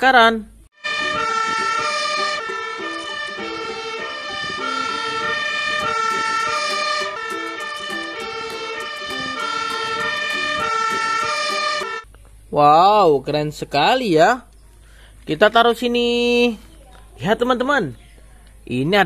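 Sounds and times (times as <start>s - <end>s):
fire engine siren: 0.8s - 12.0s.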